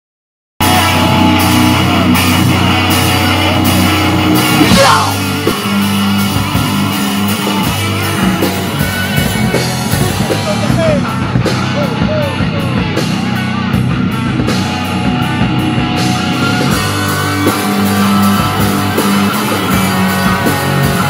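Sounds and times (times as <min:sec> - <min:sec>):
heavy metal band playing: 0:00.6 - 0:21.0
person singing: 0:04.6 - 0:05.3.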